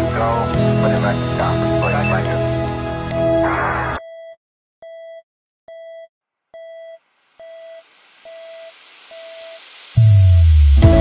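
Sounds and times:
electronic beep: 0:01.8 - 0:02.2, 0:06.6 - 0:09.6
static-like hiss: 0:07.0 - 0:10.0.

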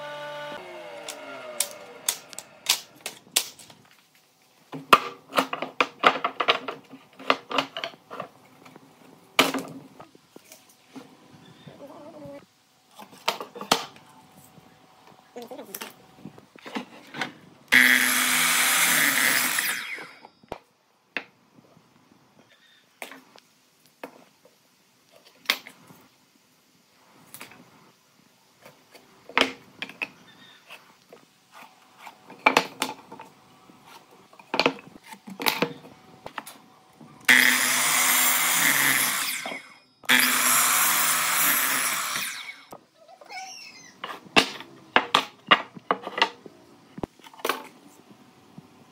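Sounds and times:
power tool motor running: 0:00.0 - 0:02.8, 0:17.7 - 0:20.1, 0:37.3 - 0:42.7.

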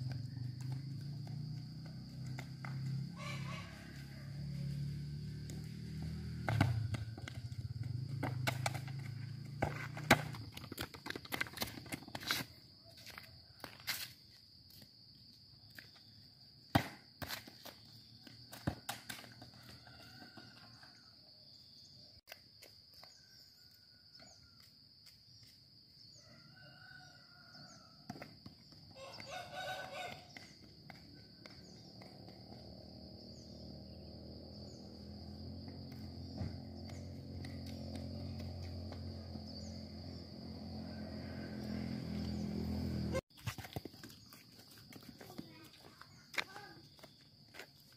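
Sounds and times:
roosters crowing: 0:02.8 - 0:08.5, 0:19.4 - 0:21.2, 0:26.2 - 0:28.1, 0:28.9 - 0:31.9, 0:39.0 - 0:43.2
ball knocking on concrete: 0:06.4 - 0:12.2, 0:28.0 - 0:29.4.

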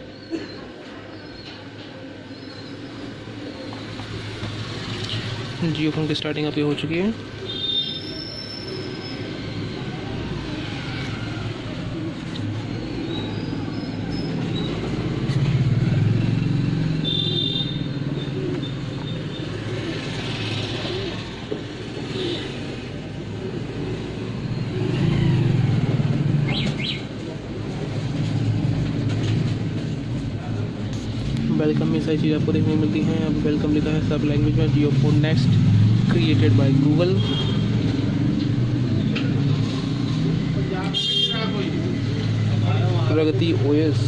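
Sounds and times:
passing vehicles rumbling: 0:00.0 - 0:44.0.

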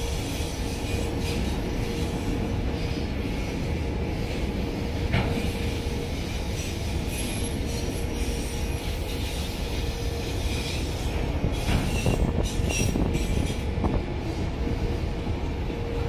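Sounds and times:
train wheels rumbling on rail: 0:00.0 - 0:16.0
wheels clacking over rail joints: 0:04.2 - 0:14.0
wheel squeals: 0:06.5 - 0:13.6.

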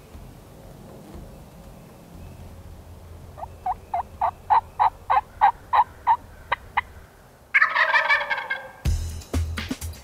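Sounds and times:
turkey yelps: 0:03.6 - 0:06.9, 0:07.6 - 0:08.8.

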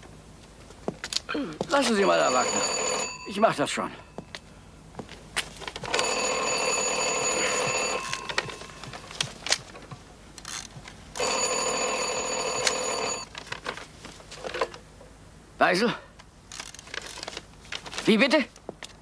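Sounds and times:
telephone bell ringing: 0:02.0 - 0:04.2, 0:05.9 - 0:09.2, 0:11.2 - 0:13.3.

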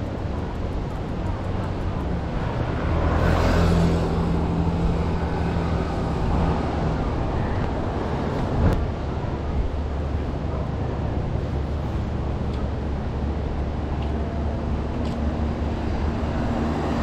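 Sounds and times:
low traffic rumble: 0:00.0 - 0:17.0
car driving past: 0:02.8 - 0:06.8.

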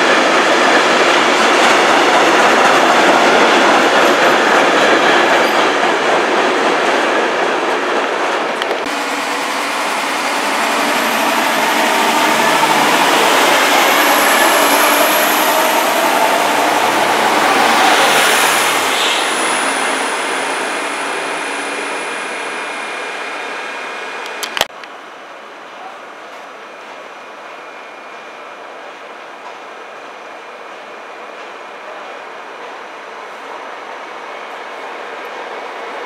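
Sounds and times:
train wheels rumbling on rail: 0:00.0 - 0:24.7.

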